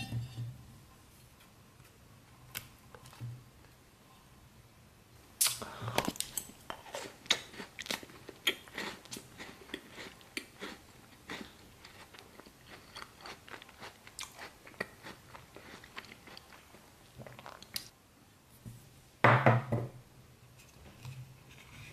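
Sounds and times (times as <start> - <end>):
crunchy biting and chewing: 6.0 - 16.7.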